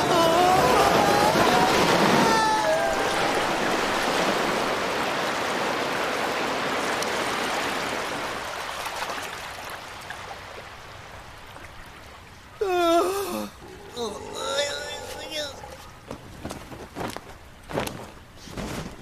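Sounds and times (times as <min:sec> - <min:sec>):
person yelling: 0:00.0 - 0:03.6, 0:12.6 - 0:15.8
rushing torrent of water: 0:00.0 - 0:16.6.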